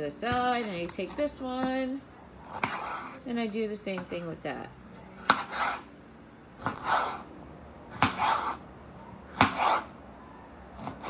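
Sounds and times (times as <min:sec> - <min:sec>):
knife slicing on cutting board: 0:02.5 - 0:03.2, 0:05.2 - 0:05.8, 0:06.6 - 0:07.2, 0:08.0 - 0:08.6, 0:09.3 - 0:09.9.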